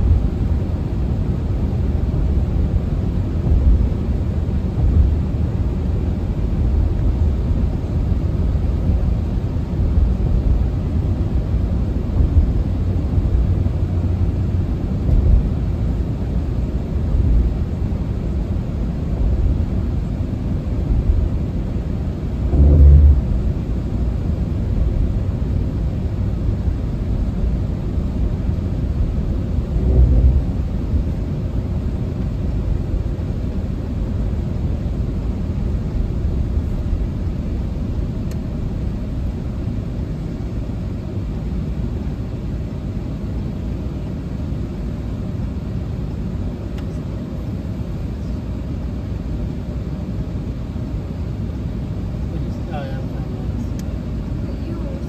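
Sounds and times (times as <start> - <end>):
road and engine rumble in car cabin: 0.0 - 55.0
low bump: 22.4 - 23.7, 29.7 - 30.8.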